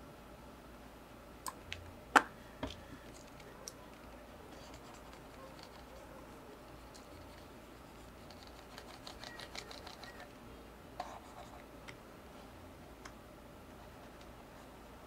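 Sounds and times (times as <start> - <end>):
low steady hum: 0.0 - 15.0
mouse and keyboard clicks: 8.2 - 10.3.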